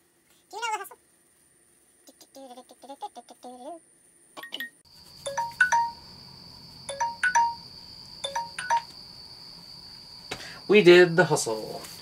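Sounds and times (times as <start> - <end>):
steady high tone: 5.2 - 6.2, 6.9 - 8.9
phone alarm chime: 5.3 - 6.0, 6.9 - 8.9.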